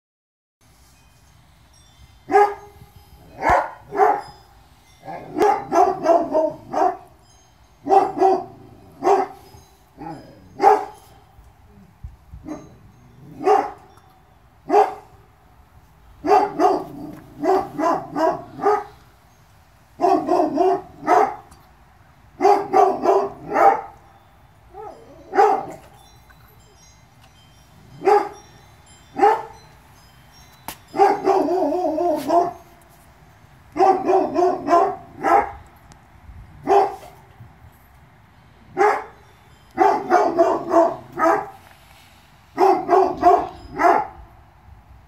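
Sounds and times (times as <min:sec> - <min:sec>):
dog barking: 0:02.3 - 0:02.6, 0:03.4 - 0:04.3, 0:05.1 - 0:07.1, 0:07.9 - 0:09.4, 0:10.0 - 0:11.0, 0:13.4 - 0:13.8, 0:14.7 - 0:15.1, 0:16.2 - 0:18.9, 0:20.0 - 0:21.5, 0:22.4 - 0:24.0, 0:24.8 - 0:25.8, 0:28.0 - 0:28.4, 0:29.2 - 0:29.6, 0:31.0 - 0:32.6, 0:33.8 - 0:35.6, 0:36.6 - 0:37.2, 0:38.8 - 0:39.2, 0:39.8 - 0:41.6, 0:42.6 - 0:44.2.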